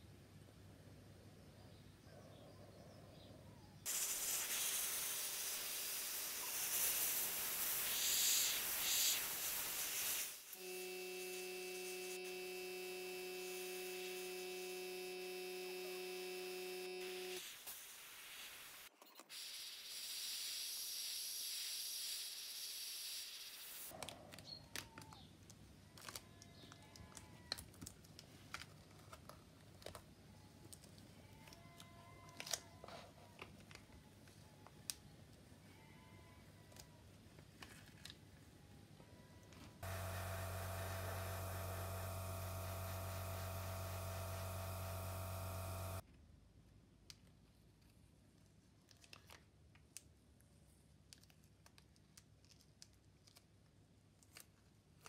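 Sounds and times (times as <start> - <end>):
airbrush spraying hiss: 3.9 - 10.6, 17.0 - 23.9.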